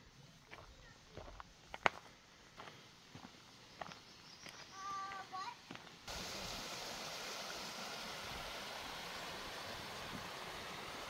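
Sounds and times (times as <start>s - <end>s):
creek water rushing: 6.1s - 11.0s.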